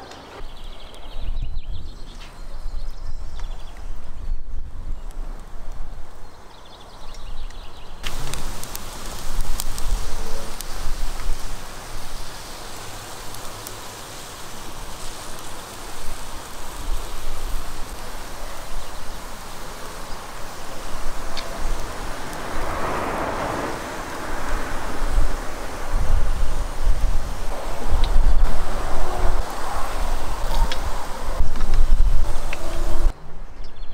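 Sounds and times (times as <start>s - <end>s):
wind buffeting microphone: 0.4s - 6.4s, 7.1s - 33.2s
kebabs sizzling on charcoal grill: 7.3s - 33.2s.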